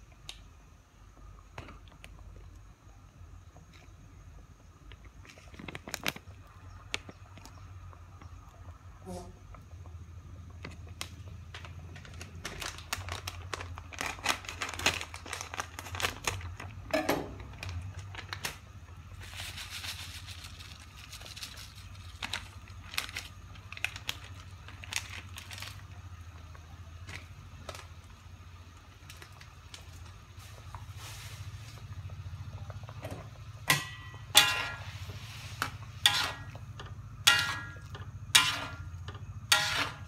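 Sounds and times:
low steady hum: 0.0 - 40.0
scattered crackles: 0.1 - 40.0
foil sachet crinkling and tearing: 5.4 - 6.8, 10.9 - 26.4
powder pouring into wok: 19.1 - 25.9.

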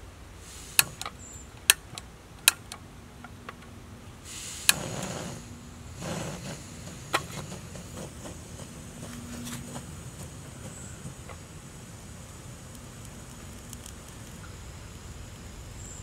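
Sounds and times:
sharp metallic clicks: 0.7 - 3.7
soft scraping rustles: 4.8 - 11.4.

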